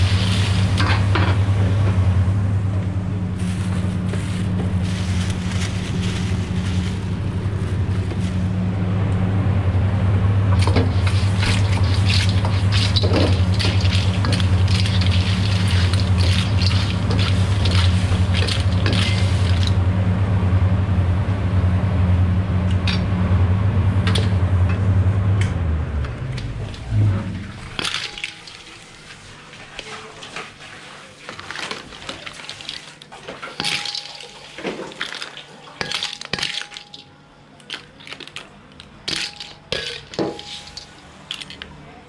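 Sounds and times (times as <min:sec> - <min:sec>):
low stove hum: 0:00.0 - 0:42.0
metal ladle scraping a wok: 0:10.6 - 0:19.8, 0:39.1 - 0:41.6.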